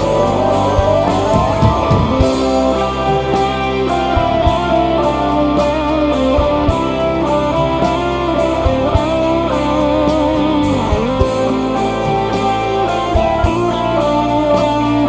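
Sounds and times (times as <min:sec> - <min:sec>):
drum kit: 0:00.0 - 0:15.0
electric guitar: 0:00.0 - 0:15.0
live band music: 0:00.0 - 0:15.0.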